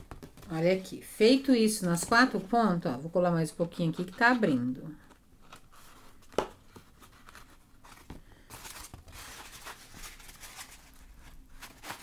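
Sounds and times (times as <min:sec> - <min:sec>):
foam sheet rubbing and rustling: 0:08.8 - 0:12.0.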